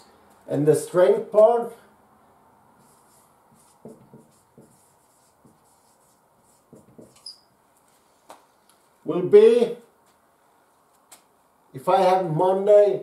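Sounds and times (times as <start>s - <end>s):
marker scratching on whiteboard: 2.8s - 7.5s
marker tip squeak: 6.8s - 7.5s.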